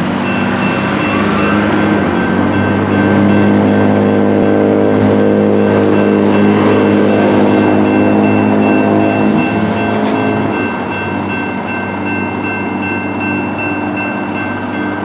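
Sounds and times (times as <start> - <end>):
railroad crossing bells ringing: 0.0 - 15.0
road traffic: 0.0 - 15.0.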